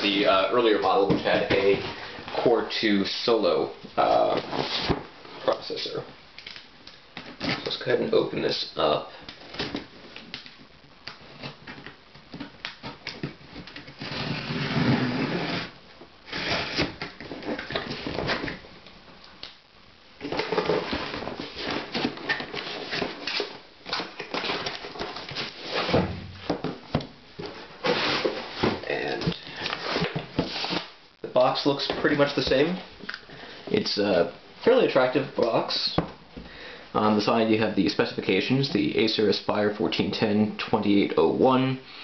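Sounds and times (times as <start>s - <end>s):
cardboard scraping and rustling: 12.9s - 18.6s, 20.2s - 30.9s.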